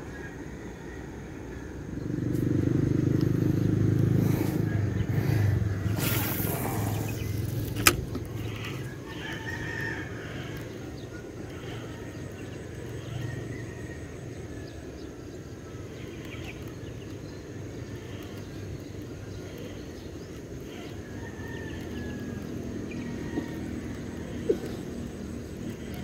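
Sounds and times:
low outdoor rumble: 0:00.0 - 0:26.0
fishing rod swishing: 0:05.2 - 0:08.6
sharp click: 0:07.5 - 0:08.4.

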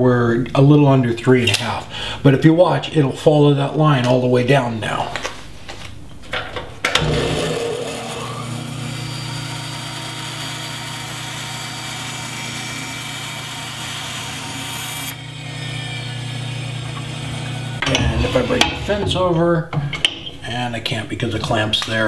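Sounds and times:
band saw motor hum: 0:07.0 - 0:18.2.

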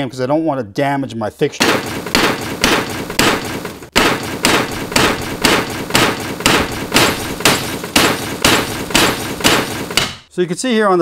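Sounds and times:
hammer tapping on metal: 0:01.6 - 0:10.3.

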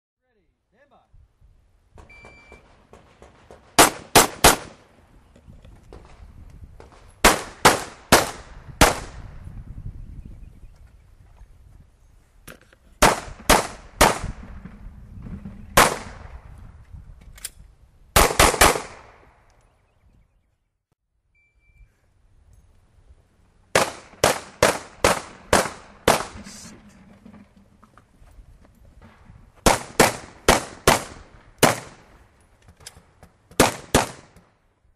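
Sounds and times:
handgun shots with echo: 0:23.8 - 0:26.5, 0:29.6 - 0:32.0, 0:33.5 - 0:34.5.

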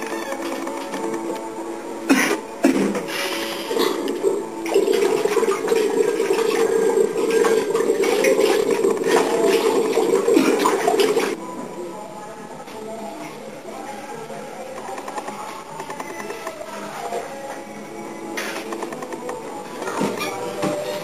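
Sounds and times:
tap water running into sink: 0:04.0 - 0:11.4.

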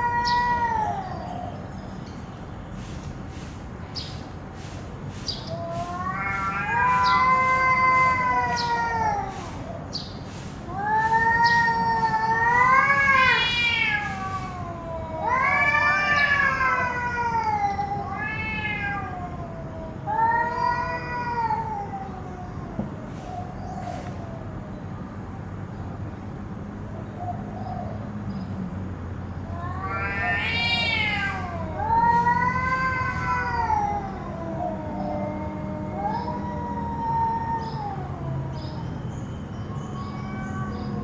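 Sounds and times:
cats yowling: 0:00.0 - 0:01.7, 0:05.4 - 0:10.0, 0:10.6 - 0:24.7, 0:29.4 - 0:41.0.

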